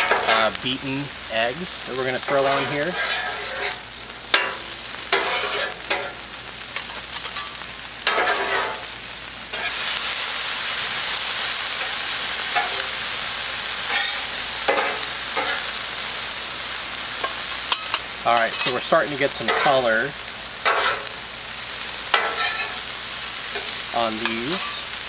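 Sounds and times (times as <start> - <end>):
vegetables sizzling on a griddle: 0.0 - 25.0
metal spatulas scraping steel: 2.3 - 3.8, 5.2 - 6.2, 19.4 - 19.8, 20.7 - 21.1, 22.2 - 22.8.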